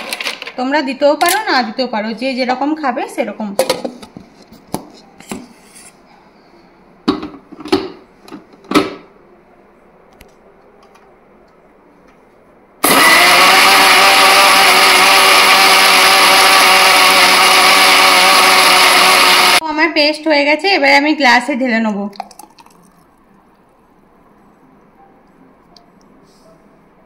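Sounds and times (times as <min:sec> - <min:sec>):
mixer grinder motor blending: 0:12.8 - 0:19.6.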